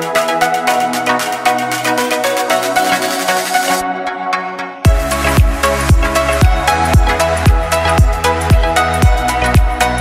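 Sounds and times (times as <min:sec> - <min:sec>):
layered synth chords: 0:00.0 - 0:10.0
heavy bass kick drum: 0:04.9 - 0:10.0.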